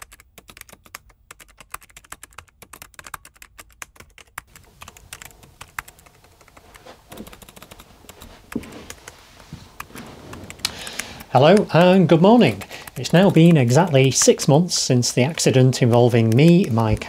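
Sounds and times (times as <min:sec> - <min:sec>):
keyboard typing: 0:00.0 - 0:17.0.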